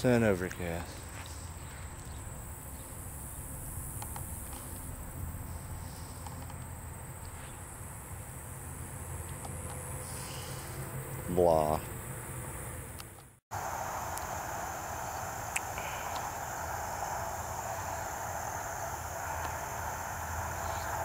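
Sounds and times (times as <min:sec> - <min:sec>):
high-pitched insect drone: 0:00.8 - 0:10.9, 0:13.6 - 0:21.0
low rumble: 0:01.8 - 0:08.5.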